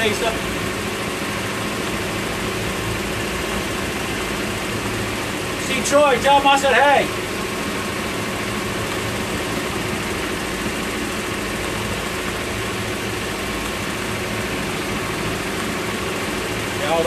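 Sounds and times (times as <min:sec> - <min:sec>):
boat motor running: 0:00.0 - 0:17.0
rush of boat wake: 0:00.0 - 0:17.0
wind: 0:00.0 - 0:17.0.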